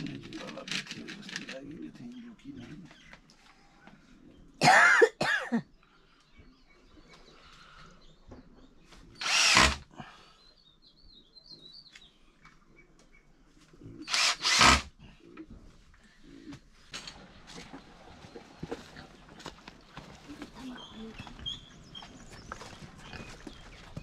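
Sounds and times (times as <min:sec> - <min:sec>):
cordless drill bursts: 0:09.2 - 0:09.9, 0:14.1 - 0:14.9.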